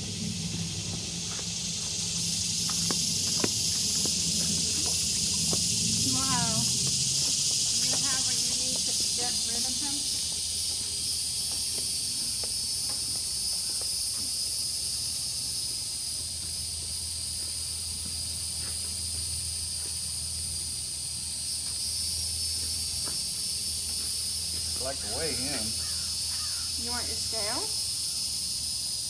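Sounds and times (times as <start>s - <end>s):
faint low rumble: 0.0s - 8.4s
high-pitched insect chorus: 0.0s - 29.0s.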